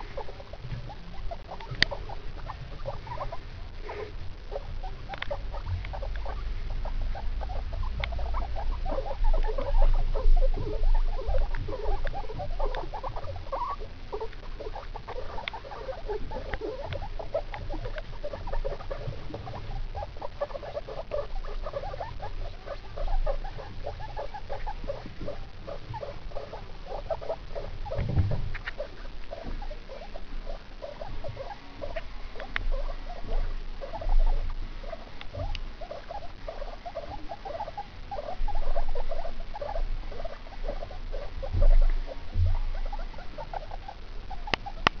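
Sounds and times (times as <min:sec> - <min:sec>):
guinea pigs squeaking: 0:00.0 - 0:45.0
low bumps: 0:24.6 - 0:36.5.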